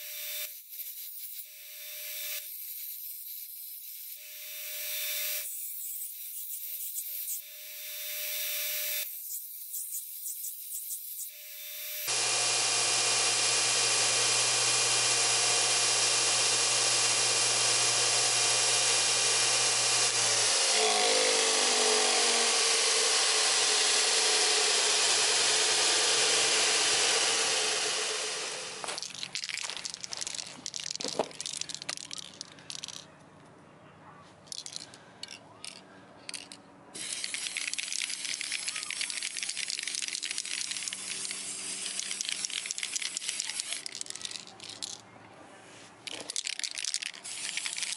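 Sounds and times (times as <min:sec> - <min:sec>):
belt grinder grinding metal: 0:00.0 - 0:32.4, 0:35.7 - 0:45.0, 0:46.1 - 0:47.9
grinder winding down whine: 0:11.7 - 0:29.0
aerosol spray paint hiss: 0:37.0 - 0:44.0, 0:46.8 - 0:47.9.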